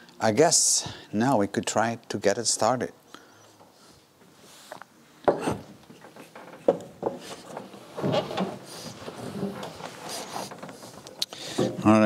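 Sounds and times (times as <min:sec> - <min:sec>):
shoes and clothing rubbing: 0:07.2 - 0:11.1.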